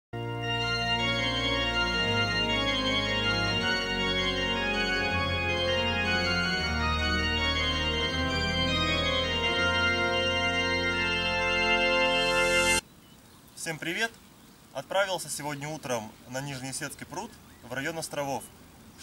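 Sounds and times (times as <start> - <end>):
instrumental music with held chords: 0.2 - 12.8.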